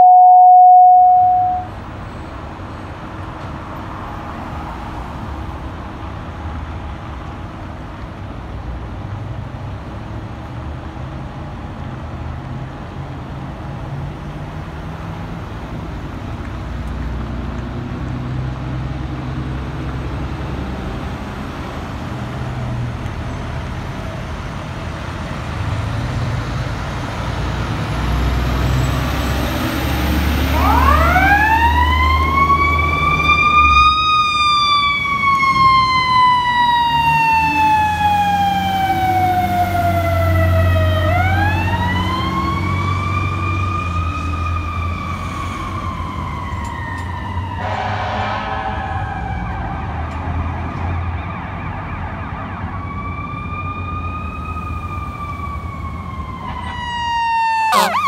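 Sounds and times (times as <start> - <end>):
fire truck siren wailing: 0.0 - 1.8, 27.9 - 58.0
city traffic rumble: 0.7 - 58.0.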